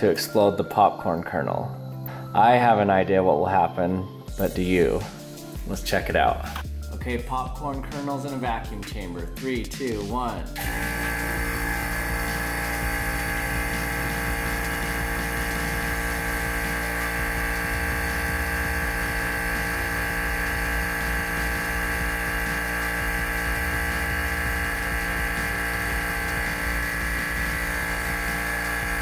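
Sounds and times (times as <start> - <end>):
vacuum pump humming: 10.6 - 29.0.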